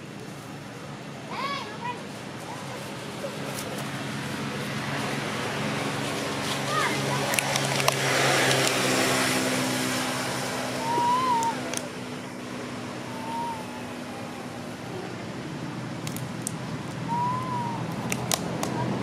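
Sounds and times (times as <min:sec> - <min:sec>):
whistling calls: 0:10.7 - 0:11.7, 0:12.9 - 0:14.9, 0:17.1 - 0:17.9.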